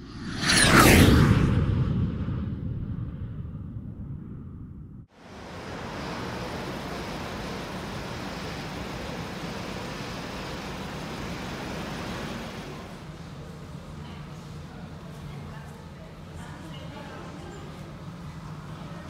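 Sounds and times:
low rumble sound effect: 0.0 - 10.6
outdoor traffic ambience: 5.1 - 19.0.

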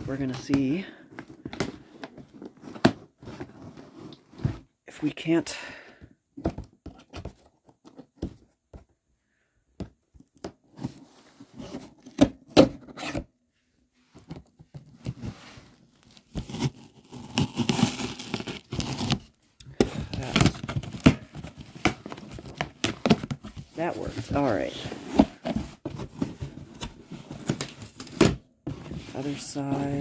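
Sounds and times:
cardboard scraping: 0.0 - 4.8, 14.2 - 30.0
tape tearing: 16.4 - 19.4.

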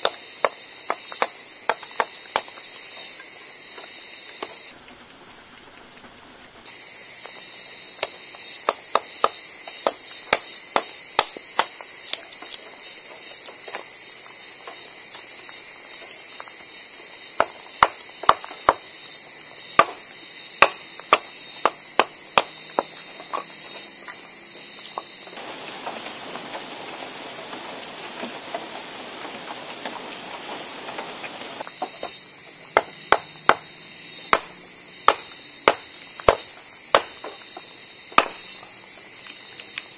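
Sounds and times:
machete chopping wood: 0.0 - 2.7, 8.0 - 14.0, 17.3 - 18.9, 19.7 - 23.5, 31.8 - 38.6
high drone of insects: 0.0 - 39.9.

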